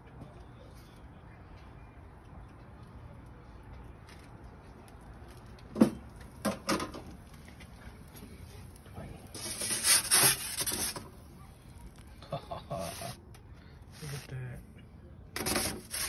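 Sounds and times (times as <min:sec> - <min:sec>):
metal peel scraping stone: 0:09.3 - 0:11.1, 0:15.4 - 0:16.0.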